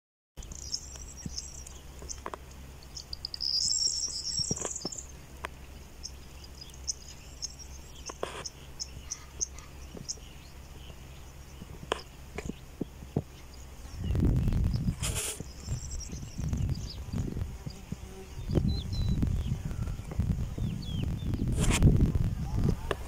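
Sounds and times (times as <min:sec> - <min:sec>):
trilling bird call: 0:00.4 - 0:05.2, 0:15.2 - 0:17.1
birds and insects chirping: 0:00.4 - 0:21.8
steady low hum: 0:00.4 - 0:23.0.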